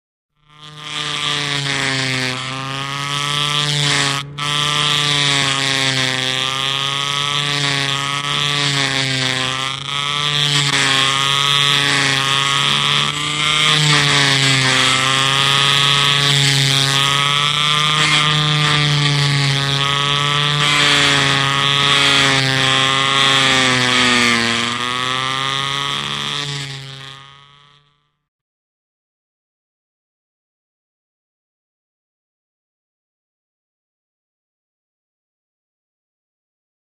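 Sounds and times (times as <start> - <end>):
electric sander running: 0.4 - 28.1.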